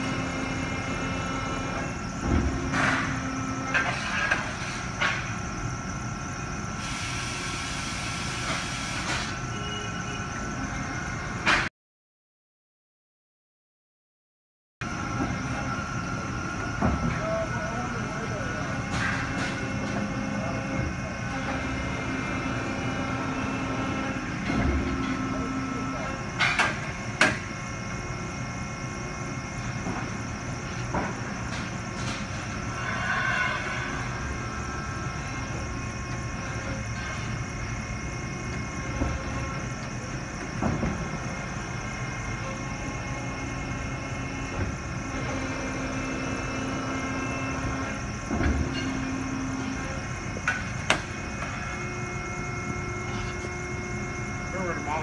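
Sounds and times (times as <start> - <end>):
folding machine humming: 0.0 - 4.4, 14.9 - 32.6, 34.1 - 55.0.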